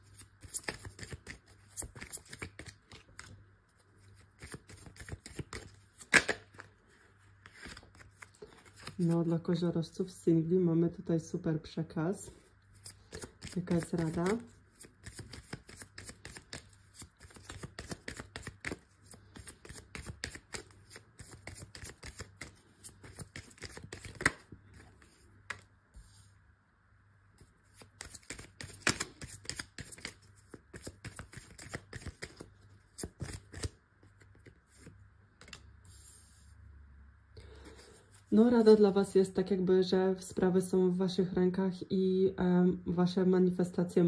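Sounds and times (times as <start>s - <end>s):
cards shuffling and snapping: 0.2s - 3.4s, 4.2s - 6.8s, 7.4s - 9.2s, 12.8s - 25.7s, 27.7s - 35.7s.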